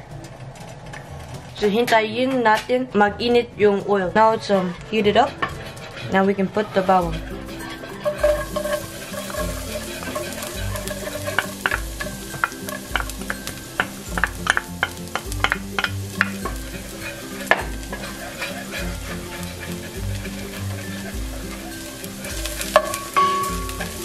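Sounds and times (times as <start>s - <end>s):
garlic sizzling in hot oil: 6.7s - 24.0s
background music with bass beat: 7.1s - 24.0s.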